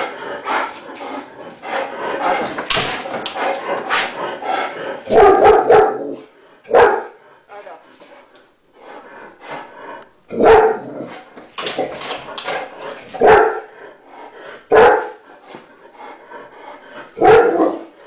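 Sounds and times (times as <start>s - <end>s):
dog barking: 5.1s - 7.2s, 10.4s - 10.9s, 13.2s - 13.7s, 14.7s - 15.1s, 17.2s - 17.9s.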